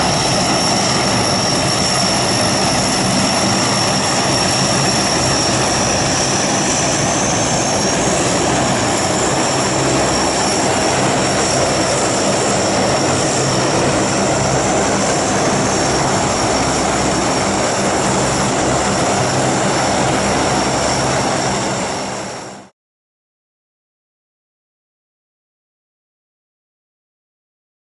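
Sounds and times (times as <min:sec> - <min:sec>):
deep propeller drone: 0:00.0 - 0:22.7
turboprop engines whining: 0:00.0 - 0:22.7.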